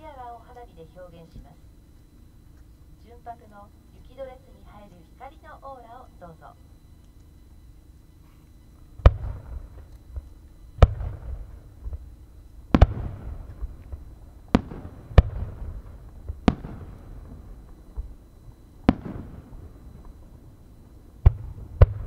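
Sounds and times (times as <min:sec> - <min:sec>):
fireworks bangs: 0:09.0 - 0:18.2, 0:18.8 - 0:20.6, 0:21.2 - 0:22.0
low rumbling echo: 0:09.0 - 0:18.2.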